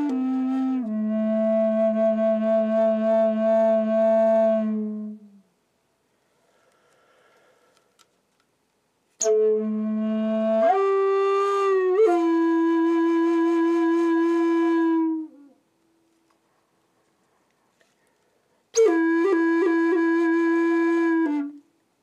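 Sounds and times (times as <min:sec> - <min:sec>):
wooden flute playing: 0:00.0 - 0:05.4, 0:09.2 - 0:15.6, 0:18.8 - 0:21.8.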